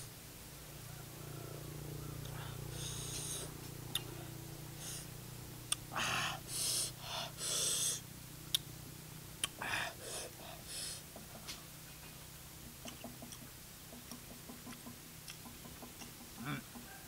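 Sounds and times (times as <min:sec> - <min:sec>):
low steady hum: 0:00.0 - 0:17.0
mouth clicks: 0:02.2 - 0:04.2, 0:05.7 - 0:06.0, 0:09.4 - 0:09.7, 0:12.8 - 0:13.5
man hissing breaths: 0:02.3 - 0:05.1, 0:05.9 - 0:08.1, 0:09.6 - 0:11.1.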